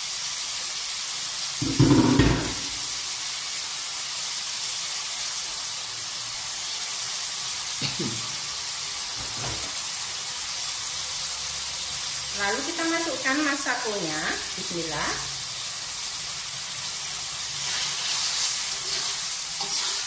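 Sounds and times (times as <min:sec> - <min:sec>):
vegetables sizzling in hot oil: 0:00.0 - 0:20.0
wok bump: 0:01.6 - 0:03.0, 0:09.2 - 0:09.8, 0:18.8 - 0:20.0.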